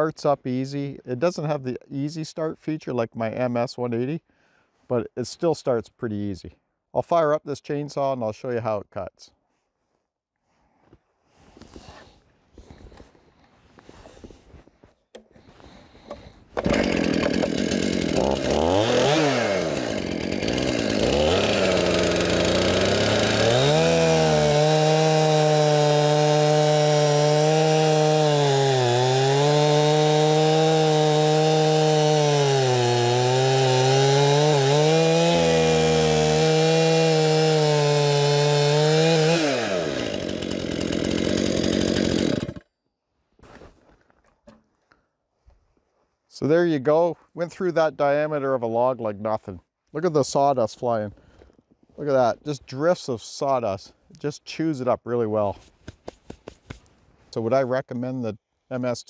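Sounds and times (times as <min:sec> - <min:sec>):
chainsaw revving and cutting log: 0:16.1 - 0:42.7.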